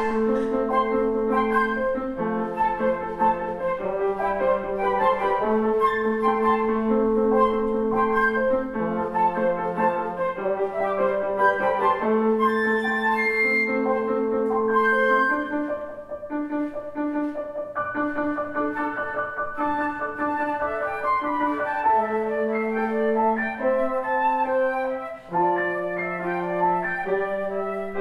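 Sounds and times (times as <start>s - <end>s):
trombone low notes: 0.0s - 4.8s
flutes playing melody: 0.0s - 28.0s
piano: 0.0s - 28.0s.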